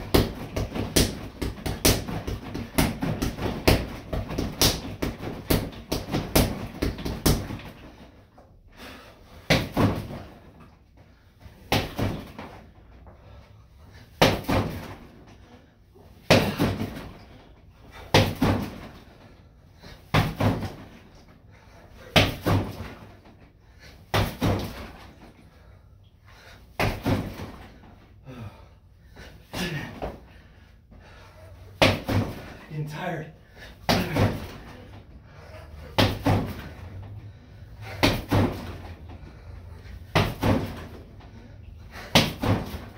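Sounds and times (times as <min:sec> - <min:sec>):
punches hitting striking dummy: 0:00.0 - 0:07.9, 0:09.5 - 0:10.3, 0:11.6 - 0:12.6, 0:14.2 - 0:15.0, 0:16.2 - 0:17.2, 0:18.1 - 0:19.0, 0:20.1 - 0:20.9, 0:22.1 - 0:23.0, 0:24.1 - 0:25.0, 0:26.8 - 0:27.6, 0:31.8 - 0:32.6, 0:33.8 - 0:34.8, 0:35.9 - 0:36.7, 0:38.0 - 0:38.9, 0:40.1 - 0:41.0, 0:42.1 - 0:42.9.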